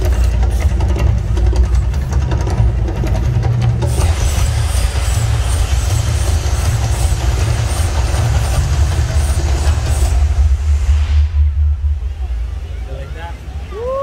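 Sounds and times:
deep rumble: 0.0 - 14.0
rushing roar of flame jets: 3.4 - 14.0.

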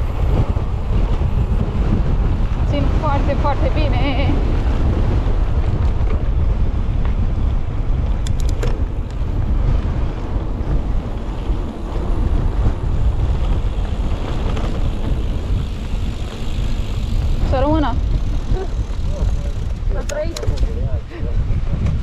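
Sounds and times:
bike rolling rumble: 0.0 - 22.0
wind buffeting microphone: 0.0 - 22.0
sharp clicks: 8.2 - 9.2.

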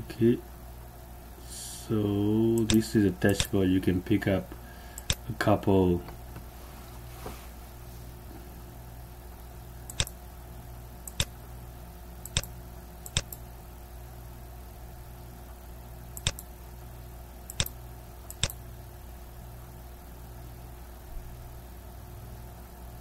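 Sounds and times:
steady low hum: 0.0 - 23.0
computer mouse button clicks: 16.2 - 16.4, 17.5 - 18.6.

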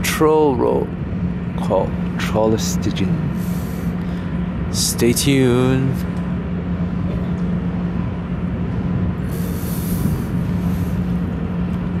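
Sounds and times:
ship machinery drone: 0.0 - 12.0
brief hiss: 9.3 - 10.3.

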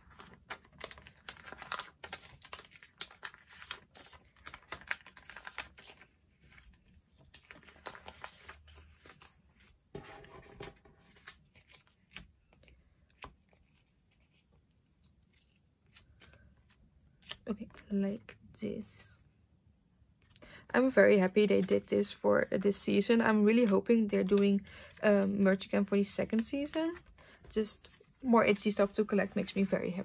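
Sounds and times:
plastic sleeves crinkling: 0.1 - 9.8.

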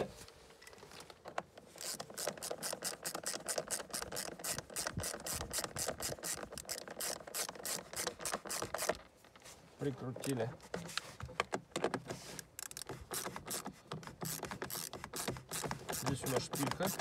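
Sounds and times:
ratchet wrench clicking: 1.8 - 8.9, 12.6 - 17.0.

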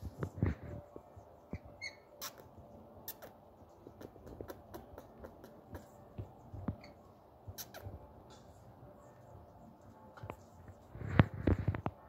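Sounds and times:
parakeet squeak: 1.8 - 2.4
faint clicks and taps: 9.8 - 12.0.

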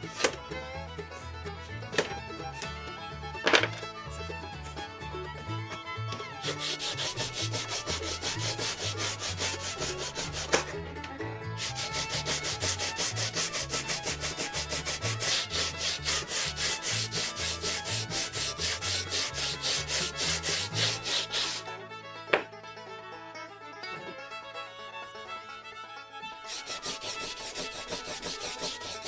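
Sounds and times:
sanding block rubbing wood: 6.4 - 10.7, 11.6 - 21.7, 26.5 - 29.0
sharp tap: 22.3 - 22.6.

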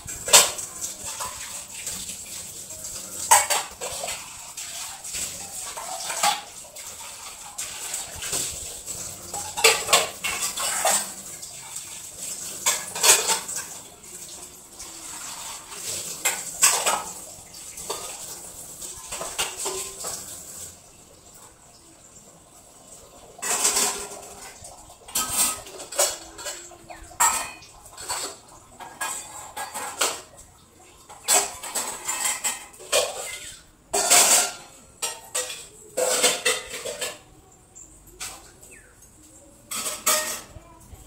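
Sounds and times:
metal pots and pans clattering: 0.0 - 20.8, 23.2 - 37.5, 38.1 - 38.8, 39.6 - 40.6.

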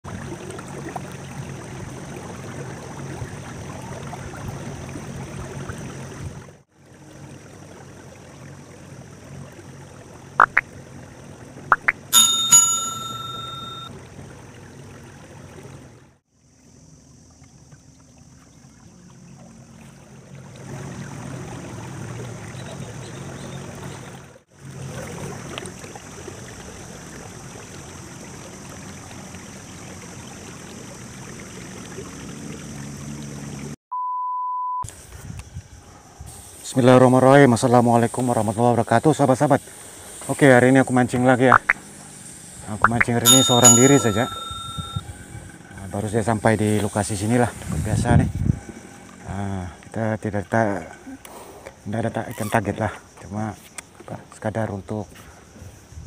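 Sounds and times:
water around a boat: 0.0 - 33.8, 34.7 - 56.0
wind: 0.0 - 33.8, 34.8 - 56.0
small bell ringing: 12.1 - 13.9, 43.2 - 45.1.

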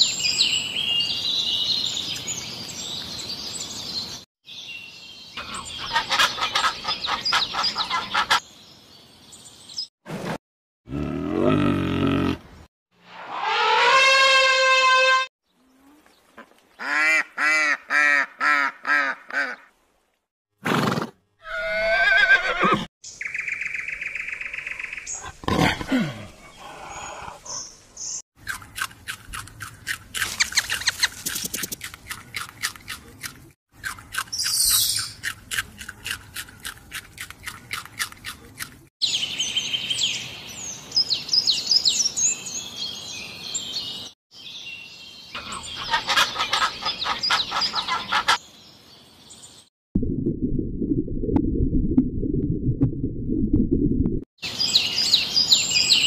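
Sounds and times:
horse whinny: 20.7 - 22.9
high chirping bird calls: 34.3 - 35.2, 39.0 - 48.5.

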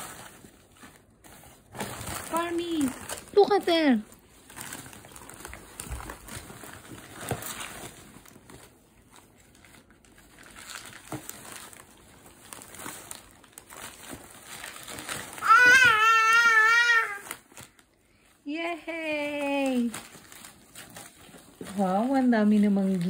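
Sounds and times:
gift wrapping crinkling: 0.0 - 23.0.

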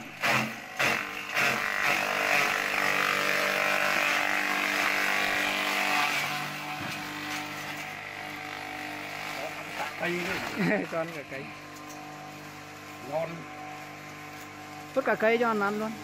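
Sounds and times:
grass chopper chopping stalks: 0.0 - 11.4
motor hum: 0.0 - 16.0.

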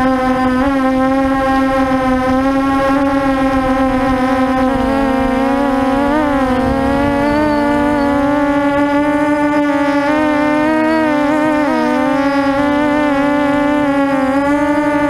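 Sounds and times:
quadcopter motors whining: 0.0 - 15.0
low rumble: 1.9 - 15.0.

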